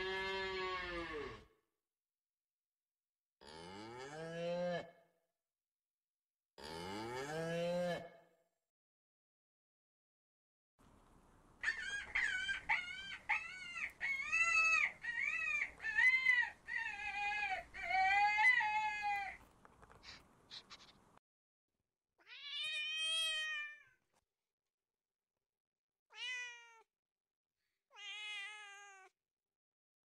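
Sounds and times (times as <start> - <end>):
cat meowing: 22.2 - 24.0, 26.1 - 26.9, 27.9 - 29.2.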